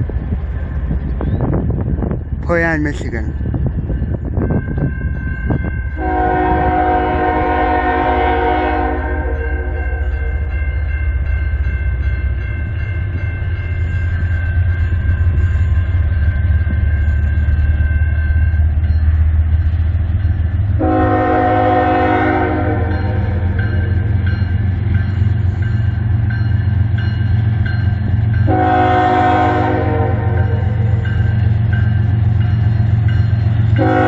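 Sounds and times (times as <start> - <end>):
locomotive low rumble: 0.0 - 34.0
crossing bell ringing: 0.6 - 34.0
locomotive horn blast: 6.0 - 10.4, 20.8 - 24.0, 28.5 - 31.0, 33.8 - 34.0.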